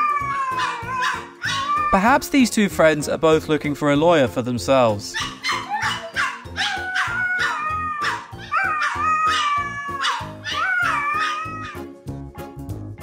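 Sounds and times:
dog howling: 0.0s - 2.0s, 5.2s - 11.8s
small dog yapping: 0.2s - 1.9s, 5.2s - 11.8s.

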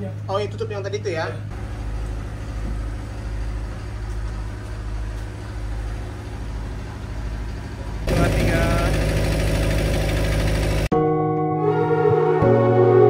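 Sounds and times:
engine room machinery drone: 0.0s - 10.9s.

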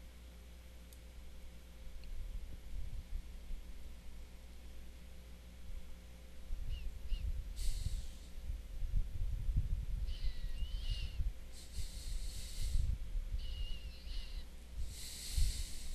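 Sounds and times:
person breathing close to microphone: 7.5s - 8.4s, 11.5s - 13.0s, 14.1s - 15.9s.

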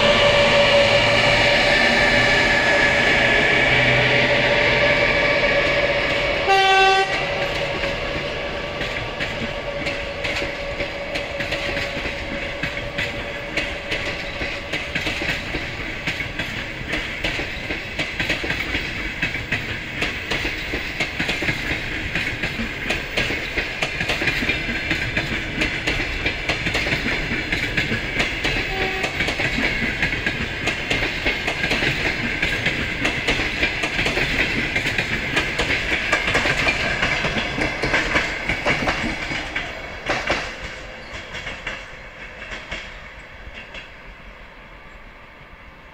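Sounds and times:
train wheels clicking over rail joints: 0.0s - 44.1s
train horn toot: 5.6s - 7.4s, 28.5s - 29.4s.

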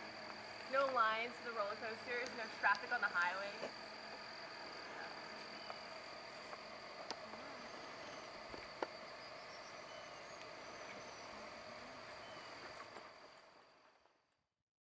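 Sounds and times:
insects trilling: 0.0s - 14.0s
low steady drone: 0.0s - 14.0s
faint chirps: 2.0s - 13.6s.

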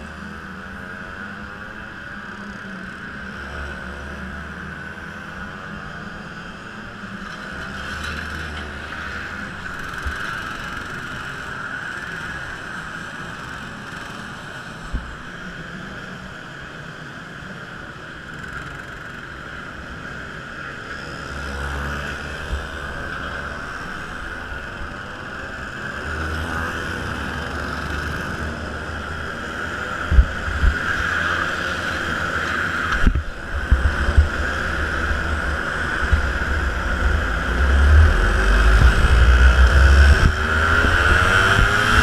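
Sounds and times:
other karts nearby: 0.0s - 42.0s
kart engine running: 18.4s - 42.0s.

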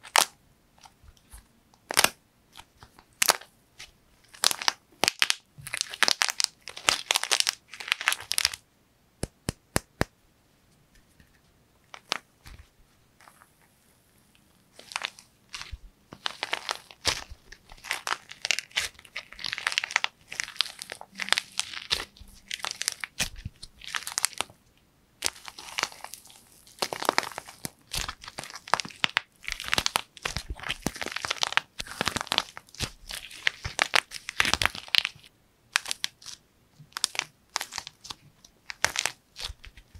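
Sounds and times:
plaster shell crackling: 14.7s - 24.6s, 25.2s - 39.9s.

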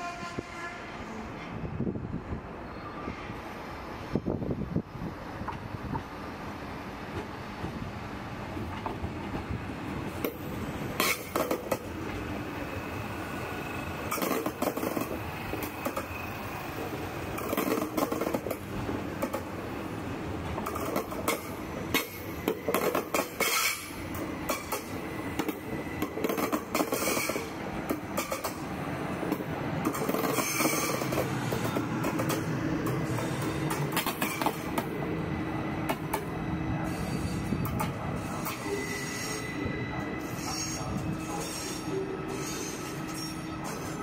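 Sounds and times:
train wheels clattering over joints: 20.4s - 28.7s
thin high squeal: 36.8s - 37.6s, 38.2s - 44.0s.

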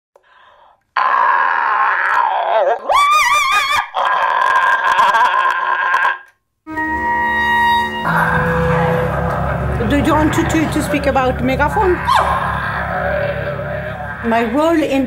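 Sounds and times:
music: 6.7s - 15.0s.

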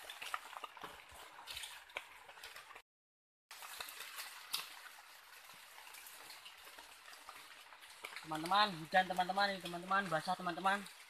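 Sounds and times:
drizzle pattering on leaves: 0.0s - 2.8s, 3.5s - 11.0s.

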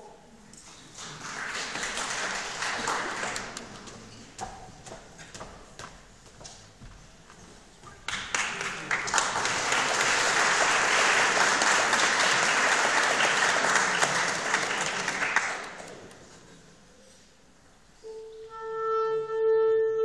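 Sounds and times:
audience applauding: 0.6s - 4.7s, 8.0s - 16.4s.

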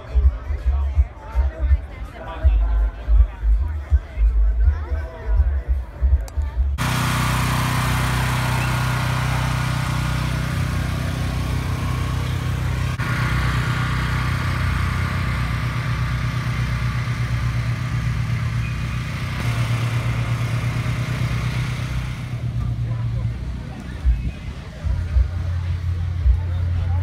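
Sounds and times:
car engine idling: 6.8s - 27.0s.

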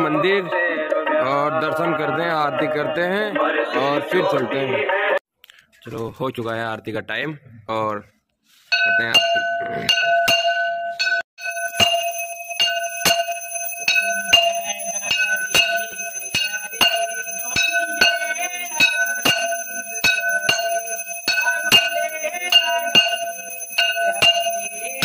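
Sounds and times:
brass bell ringing: 8.7s - 25.0s.

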